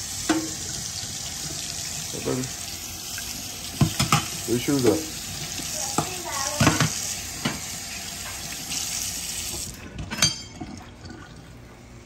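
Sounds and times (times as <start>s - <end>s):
tap running into sink: 3.7s - 4.4s, 5.5s - 8.6s.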